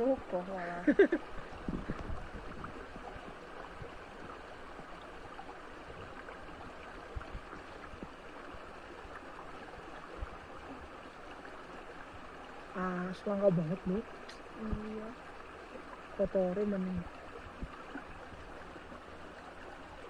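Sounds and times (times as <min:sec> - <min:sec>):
stream water running over rocks: 0:00.0 - 0:20.0
soft low thumps: 0:01.0 - 0:04.4.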